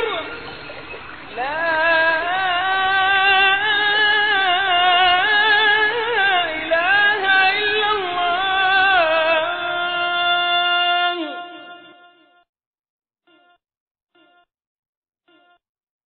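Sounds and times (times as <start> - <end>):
person singing devotional song: 0.0 - 0.5, 1.3 - 12.3.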